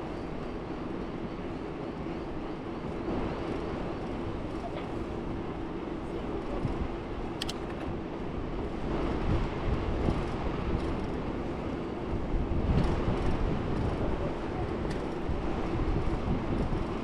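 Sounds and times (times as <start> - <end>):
bicycle wind and tyre rumble: 0.0 - 17.0.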